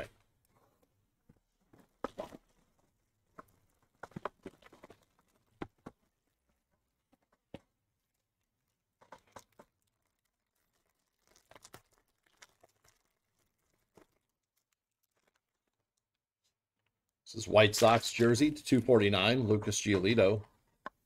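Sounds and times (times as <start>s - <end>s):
cellophane crinkling and tearing: 9.2s - 16.0s
foil pack crinkling and tearing: 9.4s - 15.9s.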